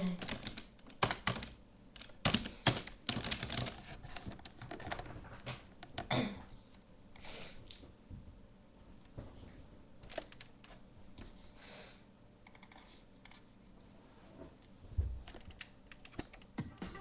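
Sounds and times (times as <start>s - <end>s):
keyboard typing: 0.1s - 5.1s, 10.0s - 10.8s, 12.4s - 13.4s, 15.2s - 17.0s.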